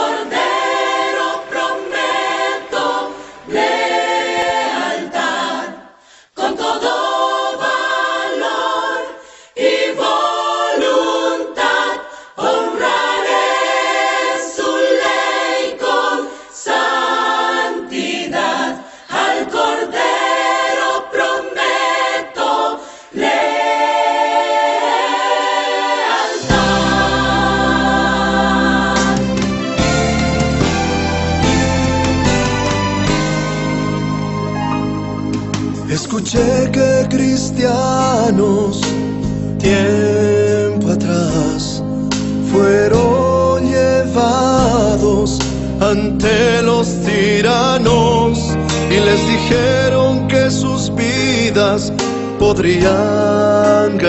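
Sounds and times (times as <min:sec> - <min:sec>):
choir singing a hymn: 0:00.0 - 0:54.0
singers breathing: 0:03.1 - 0:03.5, 0:05.9 - 0:06.4, 0:09.1 - 0:09.6, 0:12.0 - 0:12.4, 0:16.2 - 0:16.6, 0:18.8 - 0:19.2, 0:22.7 - 0:23.2, 0:39.2 - 0:39.6
low instrumental bass: 0:26.4 - 0:53.4.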